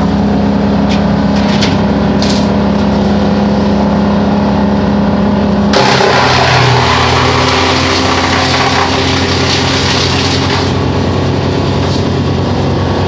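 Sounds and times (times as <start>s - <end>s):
brush chipper running: 0.0s - 13.0s
chipper chipping wood: 5.7s - 13.0s.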